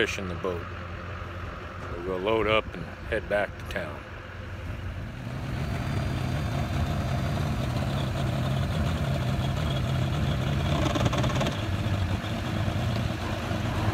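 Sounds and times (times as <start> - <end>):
outboard motor idling: 4.1 - 13.9.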